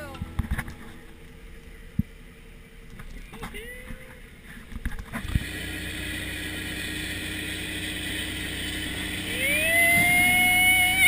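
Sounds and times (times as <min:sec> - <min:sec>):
boat engine running: 0:00.0 - 0:11.0
water rushing along hull: 0:00.0 - 0:11.0
speedboat passing at high speed: 0:05.4 - 0:11.0.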